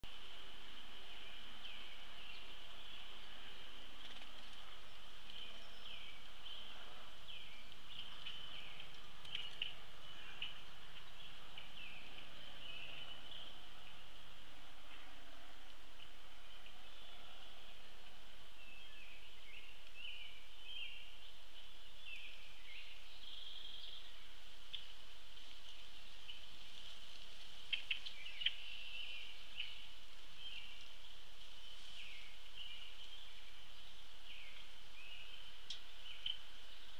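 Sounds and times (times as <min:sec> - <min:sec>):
bird chirps: 0:01.2 - 0:14.1, 0:27.7 - 0:36.9.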